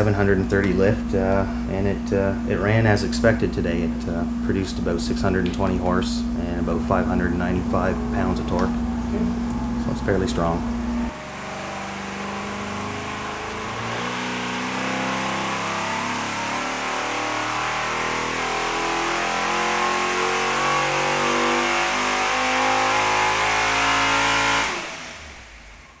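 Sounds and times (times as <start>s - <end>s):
engine running under load: 6.3s - 25.9s.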